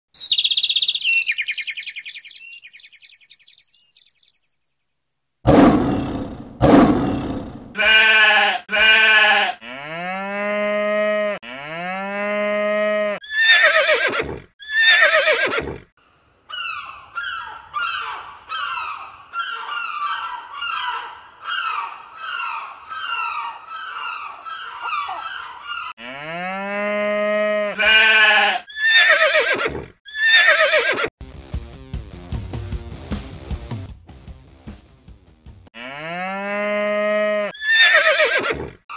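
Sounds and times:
high chirping: 0:00.1 - 0:04.6.

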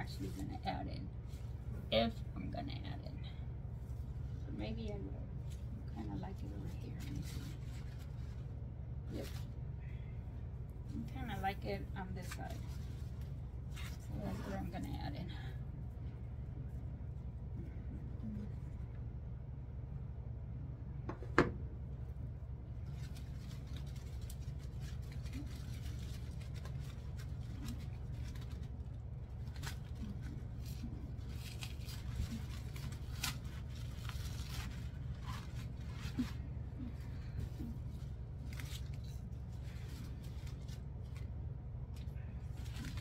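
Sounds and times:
artificial flowers rustling: 0:00.0 - 0:18.9, 0:22.0 - 0:43.0
steady low hum: 0:00.0 - 0:43.0.

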